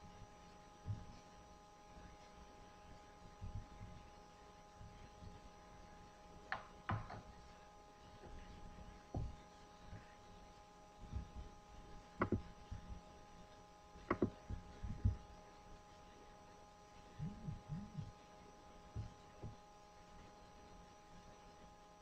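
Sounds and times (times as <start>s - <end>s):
electrical hum: 0.0s - 22.0s
knocks and thumps: 6.5s - 7.3s, 9.1s - 9.4s, 12.2s - 12.5s, 14.1s - 15.2s.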